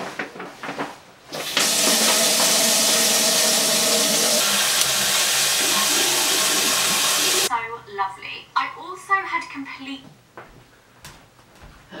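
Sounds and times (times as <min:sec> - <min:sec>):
bathtub tap turned on: 0:01.3 - 0:07.5
water running into tub: 0:01.3 - 0:07.5.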